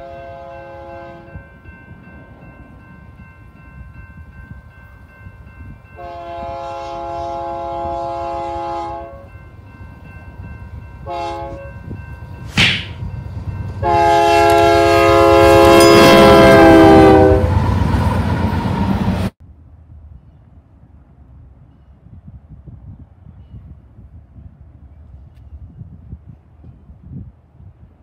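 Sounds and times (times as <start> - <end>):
locomotive air horn blasts: 0.0 - 1.4, 6.0 - 9.4, 11.0 - 11.8, 13.8 - 17.6
locomotive and wheels rumbling: 0.0 - 28.0
sharp crack: 12.5 - 13.0.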